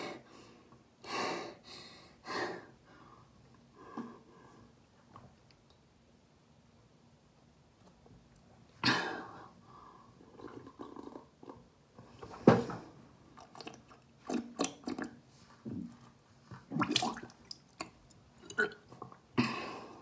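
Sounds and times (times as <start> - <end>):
person gulping water: 10.2 - 11.7, 13.3 - 19.6
swallowing and spluttering: 13.4 - 19.3.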